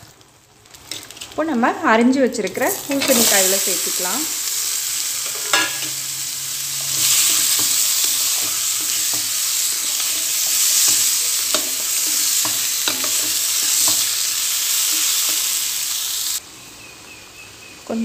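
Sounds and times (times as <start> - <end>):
vegetables sizzling in oil: 0.0 - 18.0
spatula scraping a metal pot: 6.8 - 14.2.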